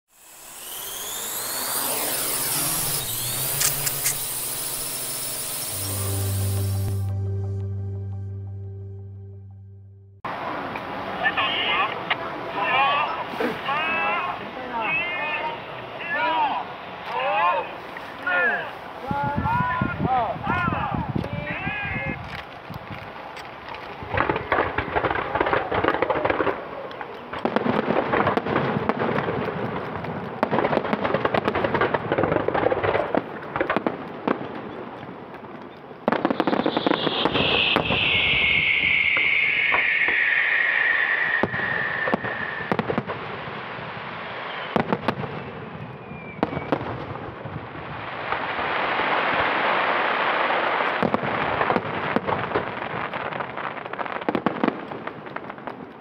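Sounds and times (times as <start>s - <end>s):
rushing hiss and crackle: 0.1s - 7.0s, 21.2s - 45.1s
fireworks bangs and crackle: 0.1s - 7.1s, 11.8s - 56.0s
firework whistle falling in pitch: 0.1s - 8.5s, 36.1s - 43.3s.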